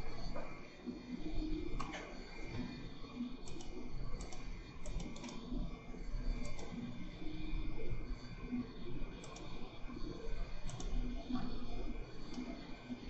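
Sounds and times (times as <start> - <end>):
computer mouse clicking: 3.4 - 5.5, 6.4 - 6.8, 9.2 - 9.6, 10.6 - 11.5, 12.2 - 12.6.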